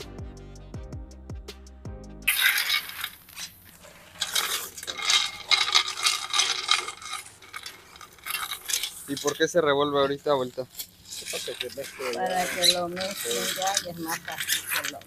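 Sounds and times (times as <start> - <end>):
sugar pouring: 2.3 - 9.4
beans rattling in metal pot: 2.3 - 15.0.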